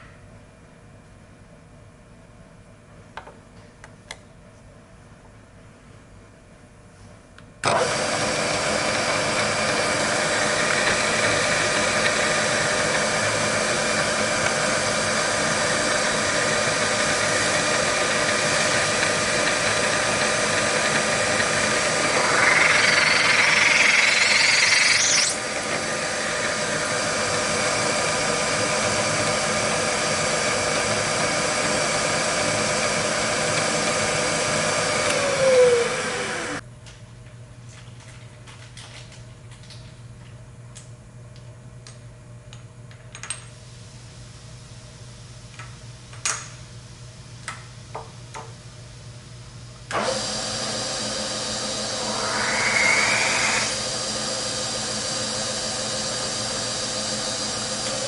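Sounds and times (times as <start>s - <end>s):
milling machine spindle whine: 7.6s - 36.6s, 50.0s - 58.0s
cutter cutting metal: 18.8s - 26.6s, 51.6s - 53.9s
spindle spinning down: 21.7s - 25.4s, 51.6s - 53.8s.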